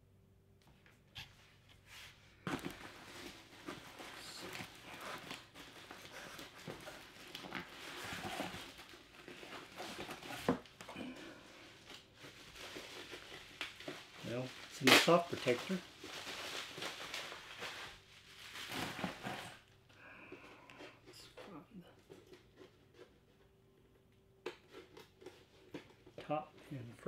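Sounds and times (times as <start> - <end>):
hands rummaging in cardboard box: 2.4 - 19.7.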